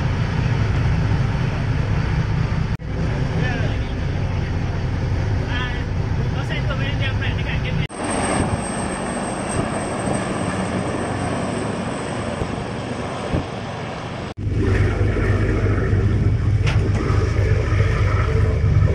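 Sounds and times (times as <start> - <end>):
boat engine humming: 0.0 - 18.9
helicopter engine and rotor: 7.5 - 18.9.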